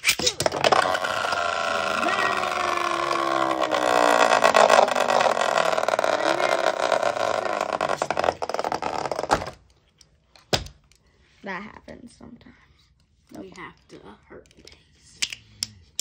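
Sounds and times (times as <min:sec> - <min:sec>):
spinning tops whirring and grinding: 0:00.0 - 0:09.5.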